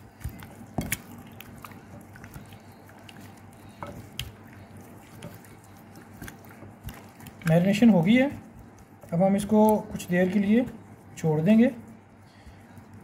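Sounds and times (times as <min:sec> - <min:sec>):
wet squelching of raw chicken: 0:00.0 - 0:13.0.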